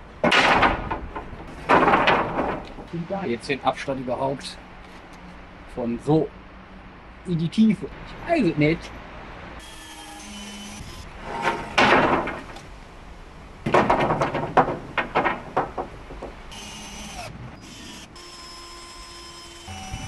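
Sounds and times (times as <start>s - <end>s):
wooden slats clattering: 0.0s - 3.2s, 11.2s - 12.8s, 13.6s - 16.5s
wooden slats scraping: 0.0s - 3.2s, 11.1s - 12.8s, 13.6s - 16.5s.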